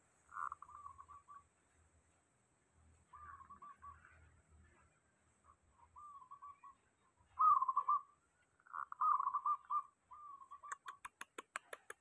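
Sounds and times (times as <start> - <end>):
dove cooing: 0.3 - 1.4, 6.0 - 6.7, 7.3 - 8.1, 8.7 - 11.1.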